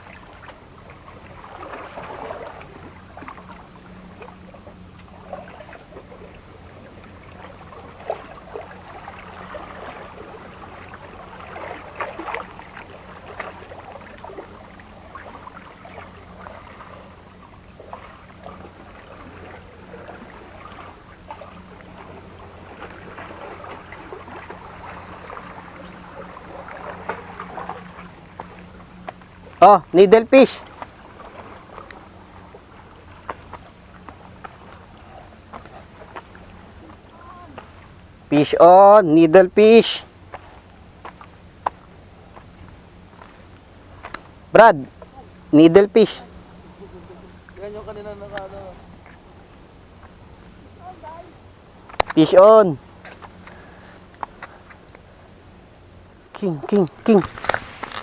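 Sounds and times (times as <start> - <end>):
sea water washing against rocks: 0.0 - 28.8, 56.5 - 58.0
low engine-like hum: 0.0 - 57.9.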